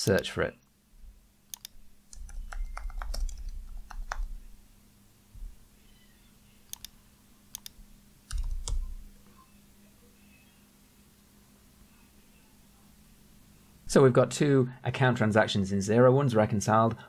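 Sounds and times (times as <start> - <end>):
computer keyboard typing: 1.5 - 4.4, 6.7 - 6.9, 7.5 - 9.0.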